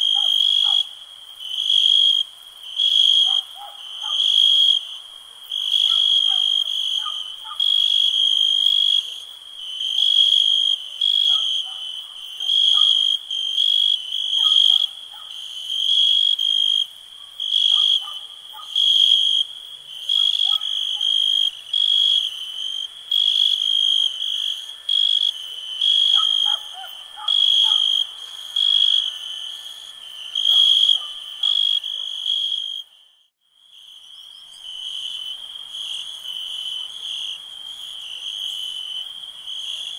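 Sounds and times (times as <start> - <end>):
crickets chirping: 0.0 - 39.9
low animal calls: 26.0 - 28.1.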